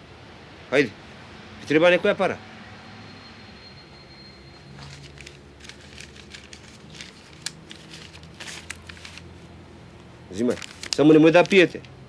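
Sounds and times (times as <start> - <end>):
clothing rustling: 4.7 - 9.4
paper banknotes crinkling: 4.7 - 12.0.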